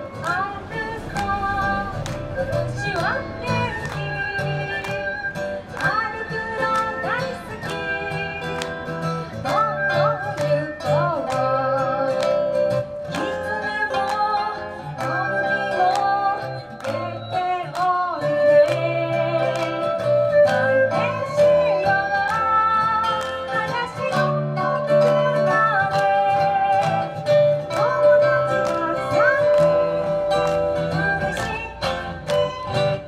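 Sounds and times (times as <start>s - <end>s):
small flutes: 0.0s - 12.0s, 13.1s - 33.0s
acoustic guitars strumming: 0.0s - 33.0s
woman singing: 0.0s - 33.0s
erhu: 14.9s - 33.0s.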